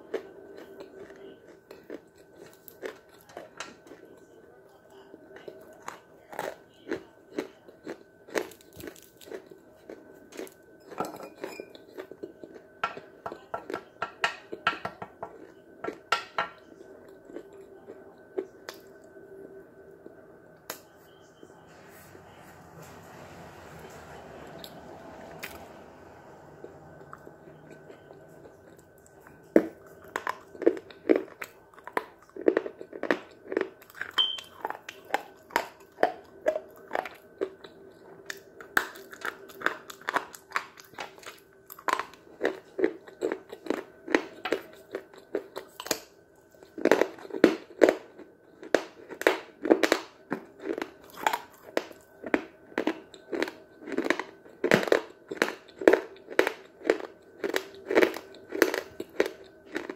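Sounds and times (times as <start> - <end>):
chalk crunching being chewed: 0.0 - 4.3, 4.9 - 13.9, 26.5 - 59.9.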